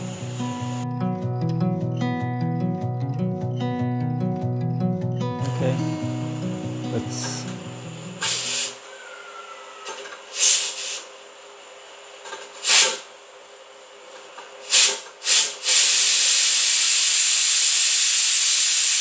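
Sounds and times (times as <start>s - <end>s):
steam hissing from pressure cooker: 8.2s - 8.8s, 10.3s - 11.1s, 12.6s - 13.1s, 14.6s - 19.0s.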